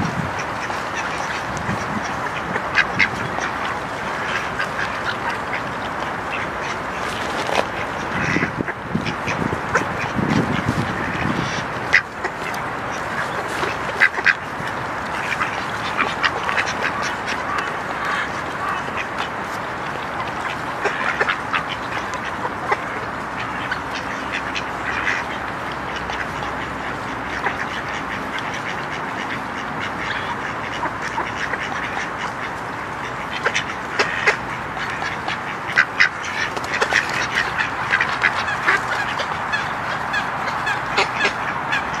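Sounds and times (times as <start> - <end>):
ducks quacking: 0.0 - 42.0.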